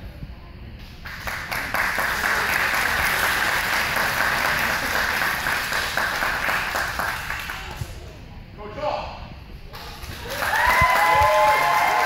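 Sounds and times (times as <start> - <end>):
audience applauding: 1.0 - 7.8, 10.0 - 12.0.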